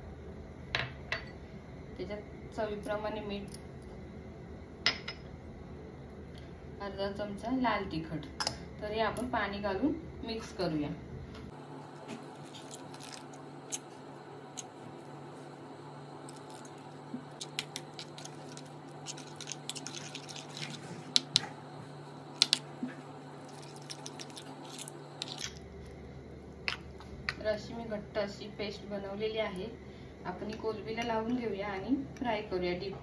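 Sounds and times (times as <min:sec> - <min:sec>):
steady low hum: 0:00.0 - 0:33.0
spoon stirring thick batter: 0:16.2 - 0:22.6.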